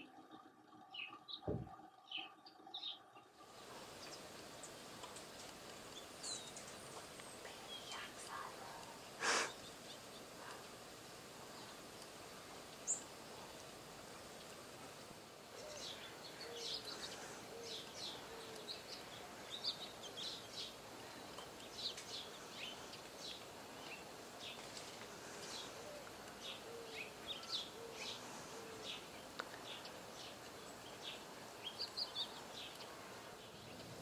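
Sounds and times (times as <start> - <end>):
birds chirping: 0.0 - 34.0
steady faint hiss: 2.8 - 34.0.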